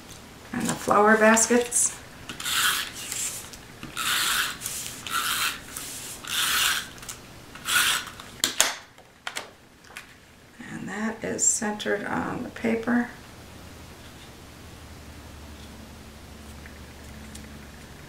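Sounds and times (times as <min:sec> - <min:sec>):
tape runner rasping on paper: 0:02.3 - 0:08.3.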